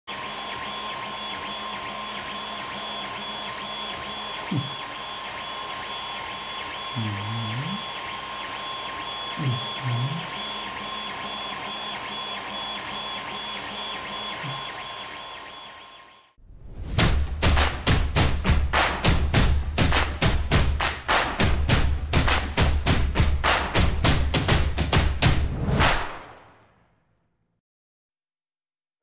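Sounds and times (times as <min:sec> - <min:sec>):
stepper motors driving: 0:00.1 - 0:16.2
printer fan tone: 0:00.1 - 0:16.4.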